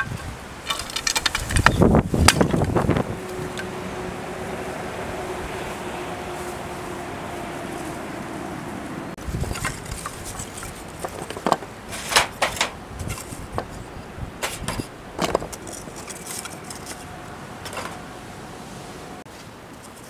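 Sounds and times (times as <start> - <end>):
hard objects clattering: 0.0 - 2.9, 9.4 - 18.0.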